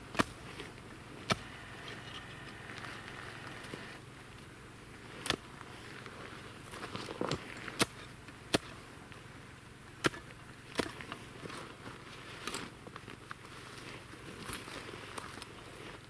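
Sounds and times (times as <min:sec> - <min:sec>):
spade chopping reeds: 0:00.0 - 0:04.0, 0:05.2 - 0:05.5, 0:07.0 - 0:08.8, 0:10.0 - 0:11.2
dry stalks crackling and rustling: 0:00.0 - 0:16.0.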